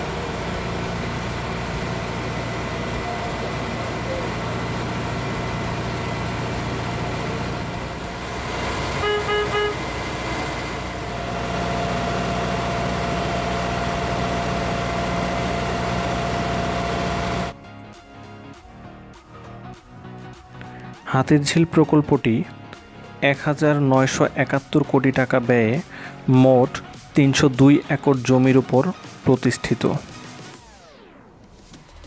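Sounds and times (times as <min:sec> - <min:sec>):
boat engine running: 0:00.0 - 0:17.5
boat horn toots: 0:08.6 - 0:10.6.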